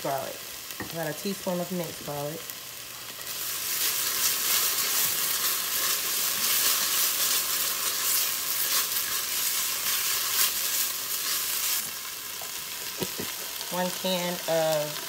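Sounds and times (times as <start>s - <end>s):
onion and garlic sizzling in oil: 0.0s - 15.0s
spatula stirring and scraping: 3.3s - 11.9s.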